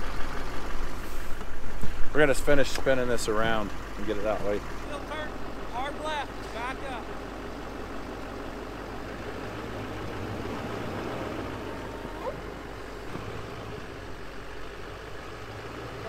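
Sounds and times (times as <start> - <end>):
truck engine at low revs: 0.0 - 16.0.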